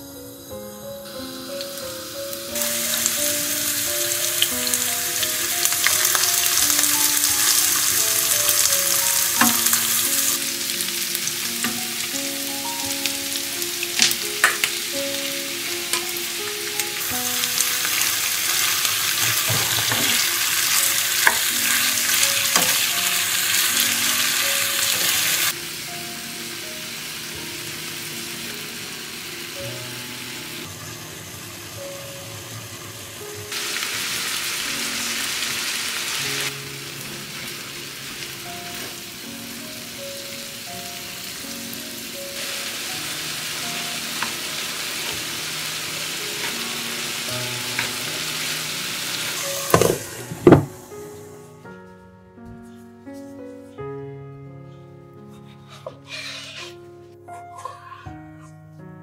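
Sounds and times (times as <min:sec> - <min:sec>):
meat sizzling in a frying pan: 0:00.1 - 0:51.4, 0:55.8 - 0:56.7
wooden spoon stirring: 0:55.3 - 0:56.8.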